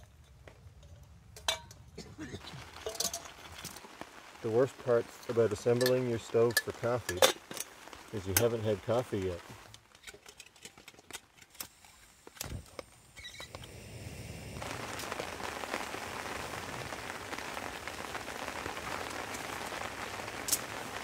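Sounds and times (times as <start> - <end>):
camp gear clicks and knocks: 0.0 - 3.9, 9.7 - 13.6
rain hiss: 0.0 - 21.0.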